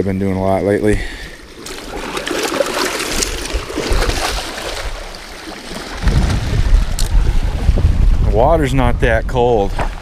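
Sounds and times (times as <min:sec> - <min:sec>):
lake water splashing: 0:01.1 - 0:07.7
wind buffeting microphone: 0:05.7 - 0:10.0.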